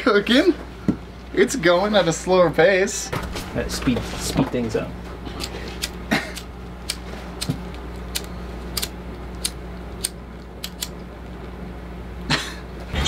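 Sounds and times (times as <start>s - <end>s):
steady low hum: 0.0s - 13.0s
utensils clicking on metal: 5.4s - 11.0s.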